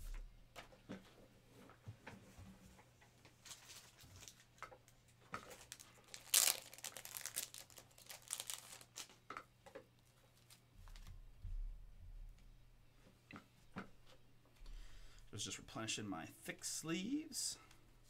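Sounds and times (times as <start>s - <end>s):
plastic sleeves crinkling: 3.4s - 9.2s, 10.0s - 11.1s.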